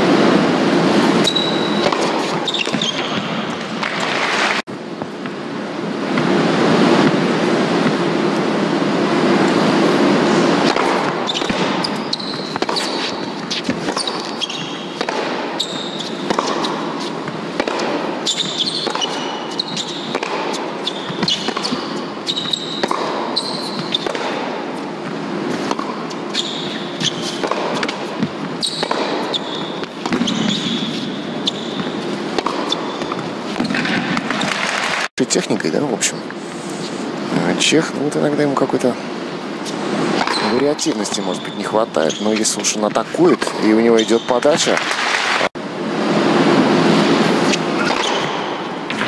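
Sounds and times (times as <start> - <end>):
racket striking ball: 0.9 - 5.4, 9.4 - 35.1, 39.7 - 41.2, 46.9 - 49.0
tennis ball bouncing: 0.9 - 5.4, 6.1 - 8.5, 9.4 - 35.0, 39.6 - 41.2, 47.1 - 49.0
shoes squeaking on court: 1.0 - 5.4, 9.5 - 35.1, 39.6 - 45.5, 47.0 - 49.0.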